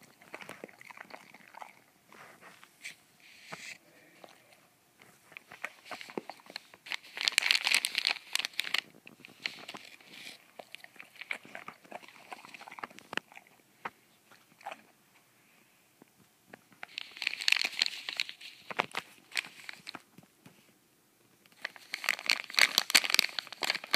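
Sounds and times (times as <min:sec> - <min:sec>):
dog crunching food: 0:00.0 - 0:01.9, 0:05.3 - 0:13.6, 0:14.3 - 0:15.0, 0:16.8 - 0:20.0, 0:21.5 - 0:23.9.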